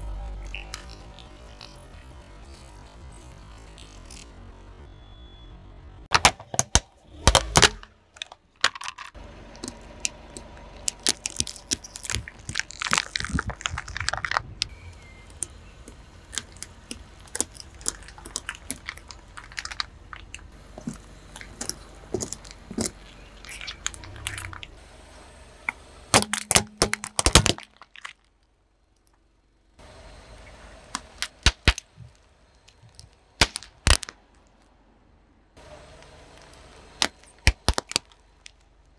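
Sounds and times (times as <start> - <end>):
plastic cracking and popping: 6.1 - 14.7, 15.3 - 24.7, 26.2 - 29.2, 30.9 - 34.7, 36.4 - 38.9.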